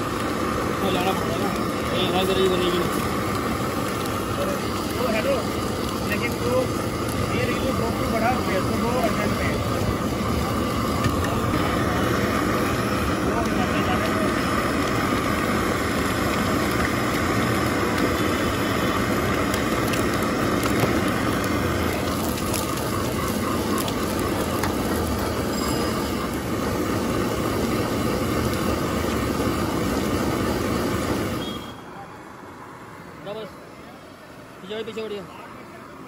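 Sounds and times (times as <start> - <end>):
loud street noise: 0.0 - 36.0.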